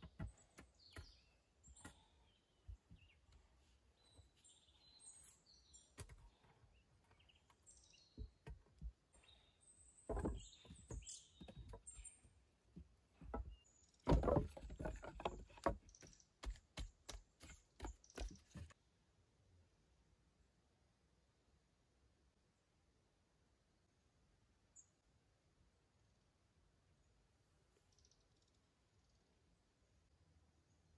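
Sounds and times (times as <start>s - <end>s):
birds chirping faintly: 0.0s - 18.8s.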